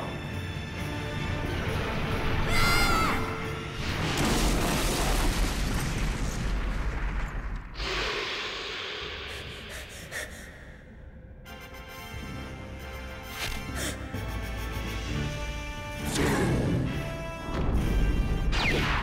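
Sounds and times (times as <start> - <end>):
background music: 0.0 - 5.0, 9.6 - 19.0.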